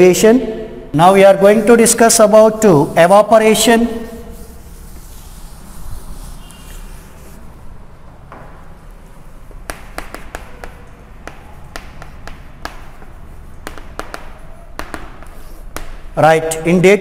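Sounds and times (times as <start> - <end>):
chalk tapping on chalkboard: 4.1 - 7.5, 8.3 - 16.2.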